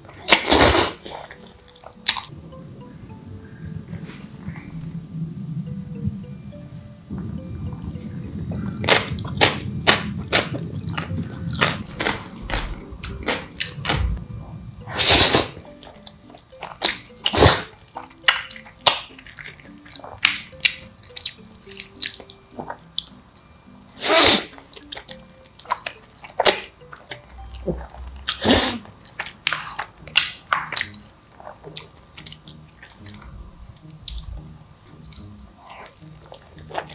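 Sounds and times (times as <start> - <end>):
slurping noodles: 0.2 - 1.3, 14.9 - 15.6, 24.0 - 24.6
wet chewing and lip-smacking: 8.8 - 14.2.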